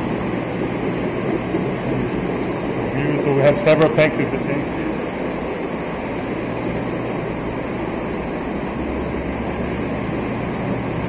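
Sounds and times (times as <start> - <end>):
circulating water: 0.0 - 11.0
low even hum: 0.0 - 11.0
water pumps and air blowers: 0.0 - 11.0.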